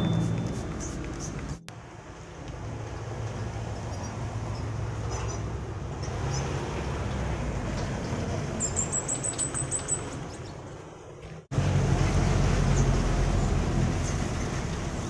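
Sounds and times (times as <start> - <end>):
bird chirps: 8.6 - 10.6.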